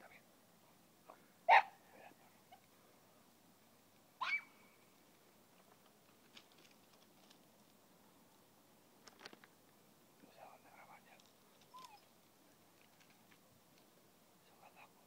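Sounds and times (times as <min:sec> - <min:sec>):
dog yelping: 0:01.5 - 0:01.8, 0:04.2 - 0:04.5, 0:11.7 - 0:12.1.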